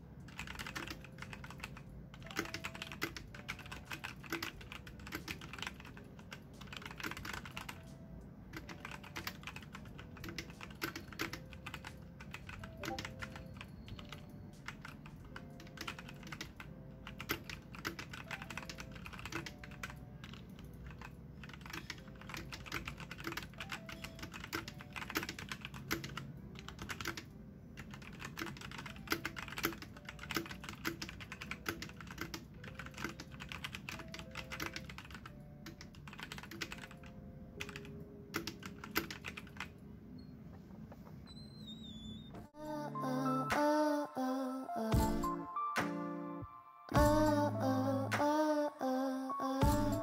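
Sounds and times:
mechanical keyboard typing: 0:00.2 - 0:39.8.

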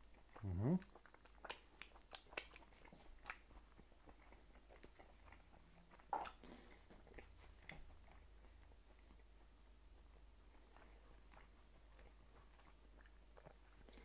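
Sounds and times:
wet mouth clicks and smacks: 0:00.8 - 0:03.6, 0:04.2 - 0:07.9.

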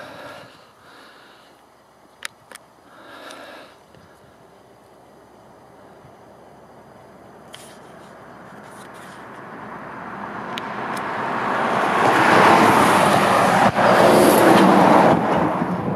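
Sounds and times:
road vehicle approaching: 0:04.3 - 0:15.9.

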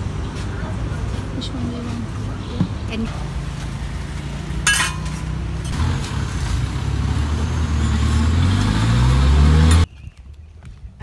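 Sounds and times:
street noise: 0:00.0 - 0:11.0
vehicle engine accelerating: 0:03.1 - 0:09.9.

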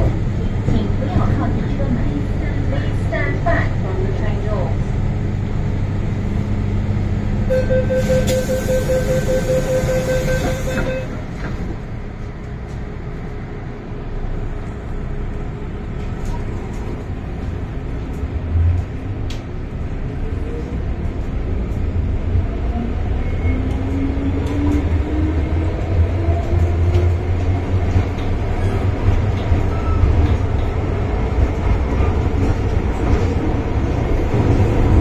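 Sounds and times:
train rumble: 0:00.0 - 0:35.0
door warning beeps: 0:07.5 - 0:11.2.

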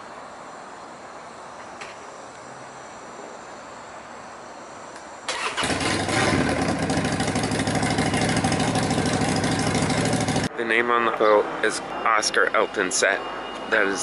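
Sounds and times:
engine running: 0:05.3 - 0:10.6.

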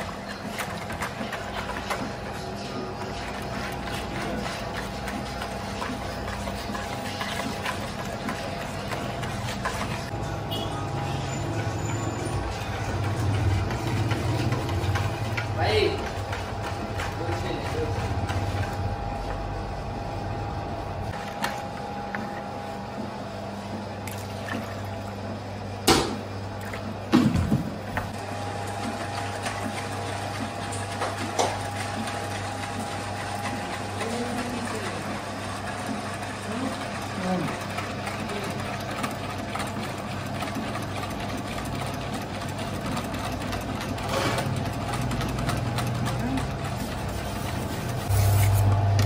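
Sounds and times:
whisk beating batter in bowl: 0:00.0 - 0:10.2, 0:11.5 - 0:20.1, 0:28.0 - 0:49.0
dough mixer humming: 0:00.0 - 0:49.0.

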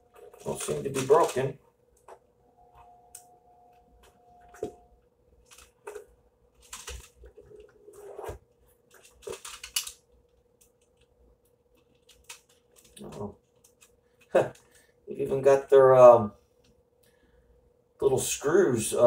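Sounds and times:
plastic packaging crinkling: 0:00.0 - 0:01.6
plastic pieces clicking: 0:09.0 - 0:10.0, 0:11.8 - 0:14.7.

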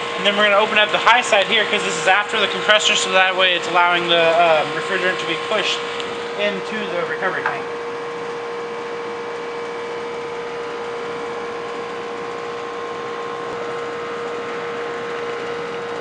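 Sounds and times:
air conditioning unit humming: 0:00.0 - 0:16.0.

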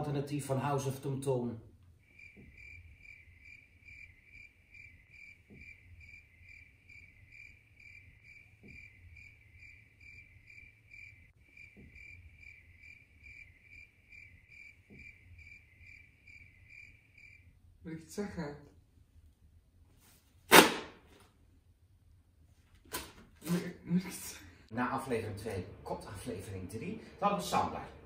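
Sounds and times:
faint cricket chirping: 0:02.0 - 0:17.7.

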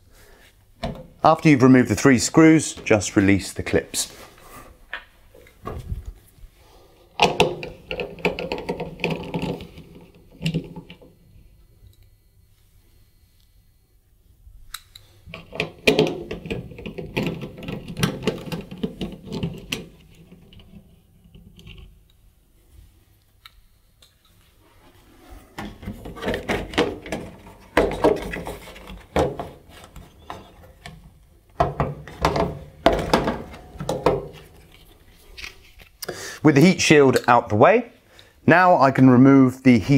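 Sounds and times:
plastic clicks and rattles: 0:07.2 - 0:11.1, 0:14.7 - 0:21.9.

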